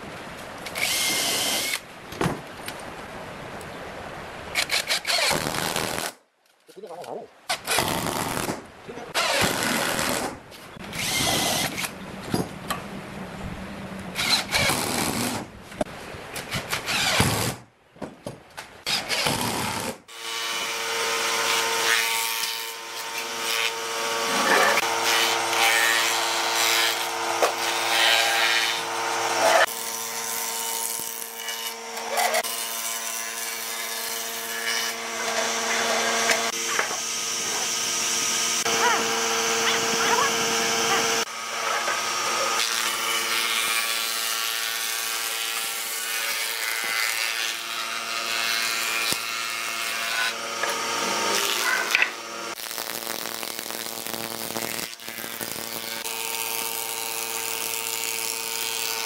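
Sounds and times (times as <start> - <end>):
power tool cutting wood: 0.8 - 1.8, 9.1 - 11.9, 14.2 - 15.5, 16.5 - 17.6, 18.9 - 59.0
steady motor hum: 36.2 - 43.1.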